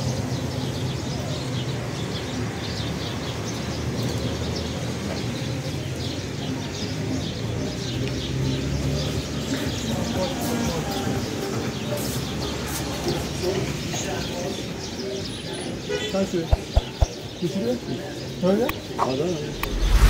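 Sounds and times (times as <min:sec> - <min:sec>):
small birds chirping: 0:00.0 - 0:20.0
traffic hum: 0:15.5 - 0:20.0.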